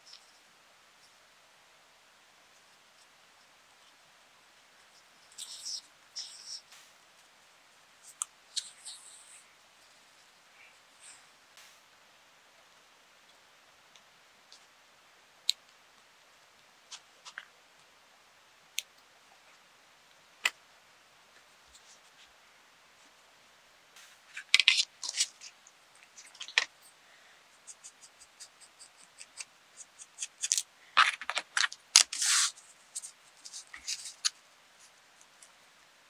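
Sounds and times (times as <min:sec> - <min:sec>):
small pieces clicking: 0:30.1 - 0:32.5.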